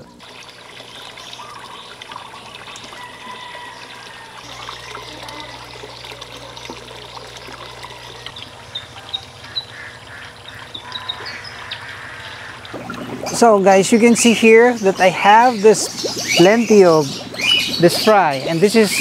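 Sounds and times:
water trickling into fish tank: 0:00.0 - 0:19.0.

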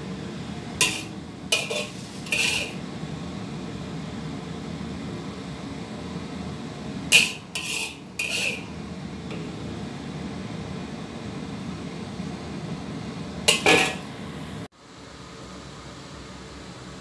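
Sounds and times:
steady low hum: 0:00.0 - 0:17.0
utensil scraping ceramic plate: 0:00.8 - 0:02.8, 0:07.1 - 0:08.7.

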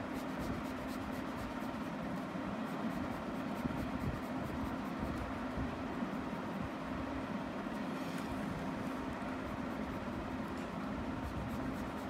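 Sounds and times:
colored pencil scratching on paper: 0:00.0 - 0:05.4, 0:11.2 - 0:12.0.

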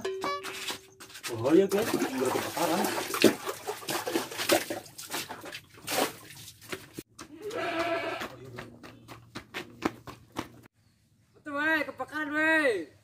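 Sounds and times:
water splashing: 0:01.3 - 0:07.0
plastic bucket and dipper knocking: 0:01.7 - 0:07.0.

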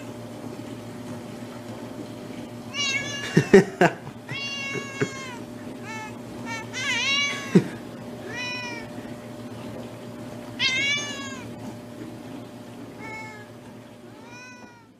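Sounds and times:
cat meowing: 0:02.7 - 0:03.4, 0:04.3 - 0:07.6, 0:08.2 - 0:09.0, 0:10.6 - 0:11.5, 0:13.0 - 0:13.5, 0:14.1 - 0:14.9.

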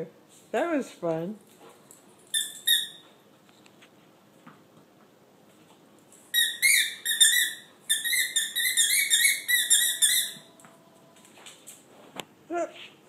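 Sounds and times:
squeaky rubber ball squeaking: 0:02.3 - 0:03.0, 0:06.3 - 0:10.5.

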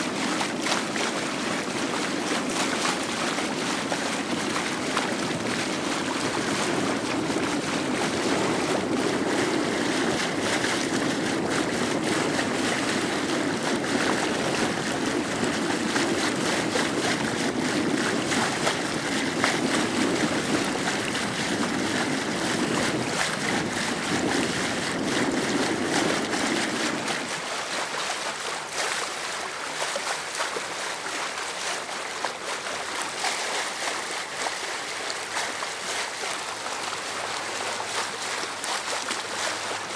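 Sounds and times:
sea water washing: 0:00.0 - 0:39.9
wind on microphone: 0:00.0 - 0:39.9.

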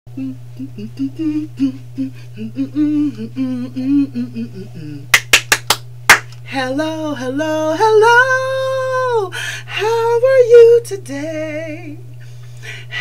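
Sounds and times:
woman humming a bouncy tune: 0:00.1 - 0:05.1
steady low hum: 0:00.1 - 0:13.0
quick sharp claps: 0:05.2 - 0:06.4.

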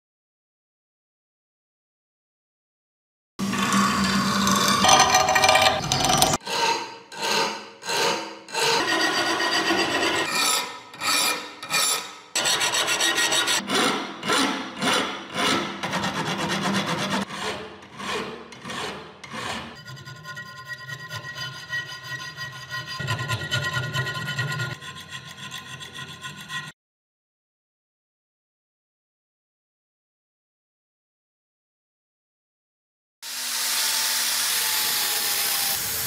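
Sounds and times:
file scraping steel blade: 0:03.4 - 0:26.8.

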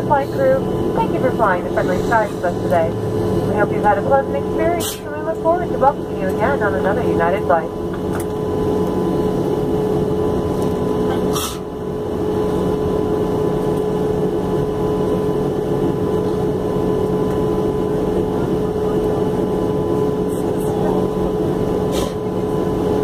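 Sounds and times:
airplane cabin drone: 0:00.0 - 0:23.0.

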